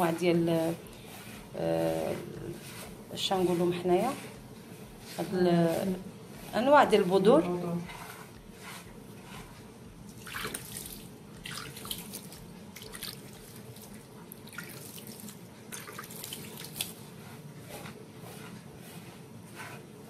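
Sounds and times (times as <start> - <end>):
water splashing and dripping: 10.2 - 16.9.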